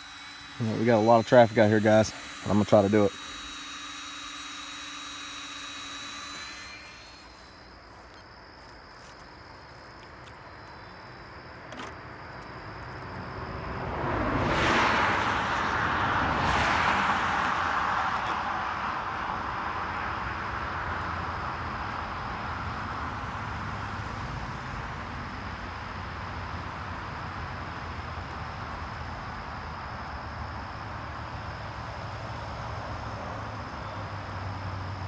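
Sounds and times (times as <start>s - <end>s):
vehicle passing on highway: 12.6s - 35.0s.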